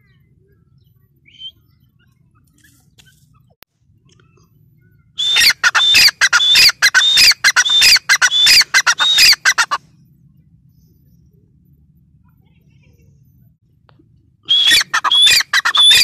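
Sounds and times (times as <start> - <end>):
shrill bird calls: 4.8 - 9.8, 14.5 - 16.0.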